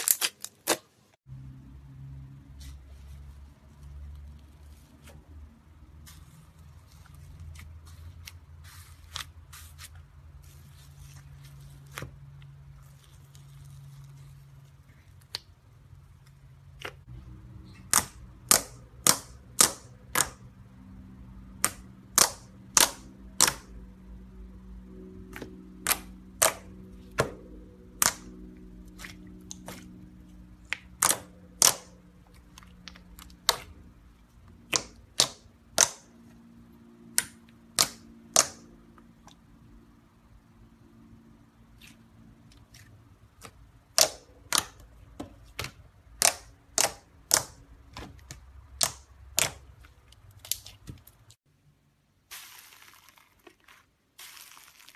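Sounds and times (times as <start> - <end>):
faint slime crackles: 6.0 - 15.5, 52.3 - 54.9.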